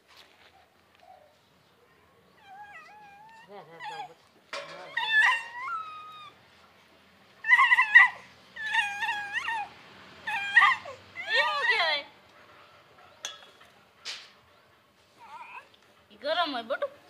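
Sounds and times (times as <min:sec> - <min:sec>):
small animal whining: 0:02.4 - 0:04.2, 0:15.2 - 0:15.8.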